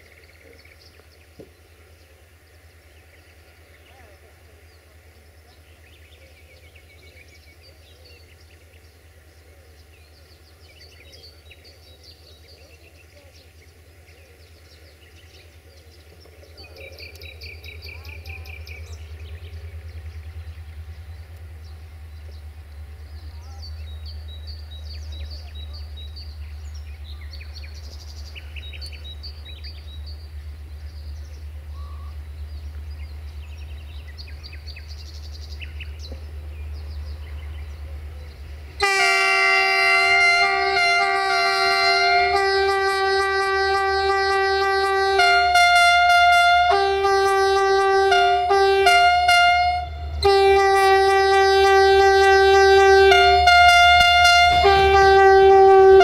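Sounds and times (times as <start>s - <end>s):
birds chirping: 0.0s - 56.0s
diesel locomotive rumbling: 0.0s - 56.0s
locomotive air horn blast: 38.7s - 56.0s.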